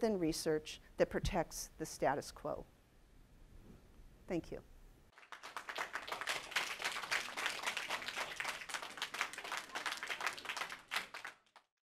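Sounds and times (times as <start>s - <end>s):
audience applauding: 5.1s - 11.7s.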